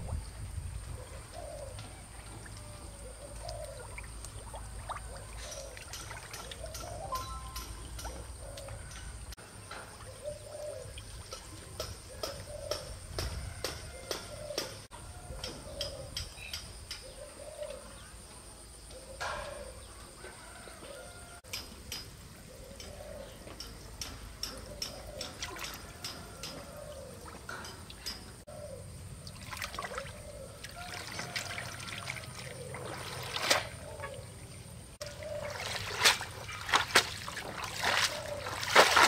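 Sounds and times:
water sloshing and trickling: 0.0s - 13.2s, 24.0s - 39.0s.

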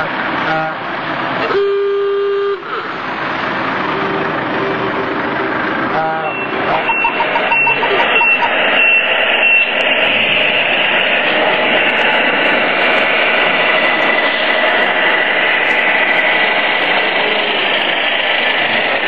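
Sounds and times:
faint high whine: 6.2s - 18.1s.

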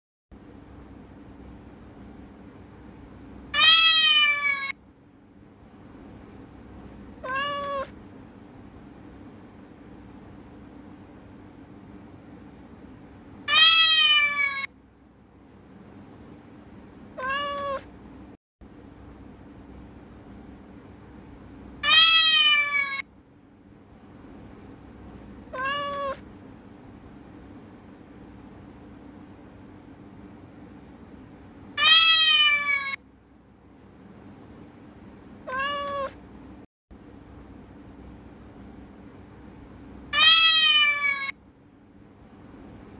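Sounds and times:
faint steady hum: 0.3s - 42.9s
cat meowing: 3.6s - 4.8s, 7.2s - 8.0s, 13.5s - 14.7s, 17.2s - 17.9s, 21.8s - 23.0s, 25.5s - 26.2s, 31.8s - 33.0s, 35.4s - 36.2s, 40.1s - 41.4s.

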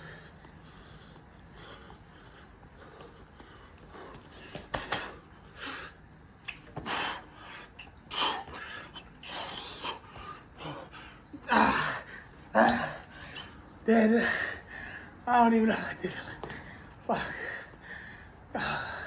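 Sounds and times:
man breathing hard: 0.0s - 15.3s, 15.9s - 19.0s.

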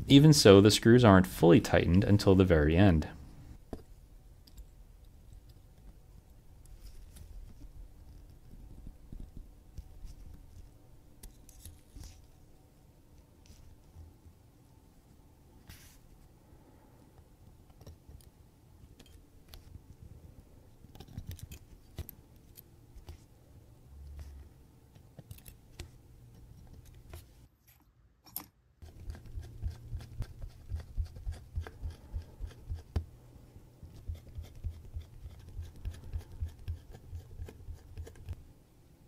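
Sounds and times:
low steady hum: 0.0s - 39.0s.

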